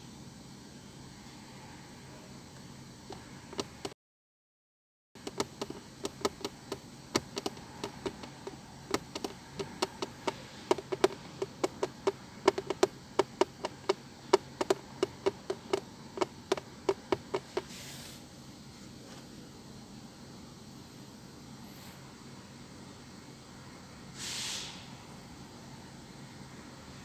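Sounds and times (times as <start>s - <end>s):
rapid sharp clicks: 5.2s - 17.7s
faint hiss: 5.3s - 27.0s.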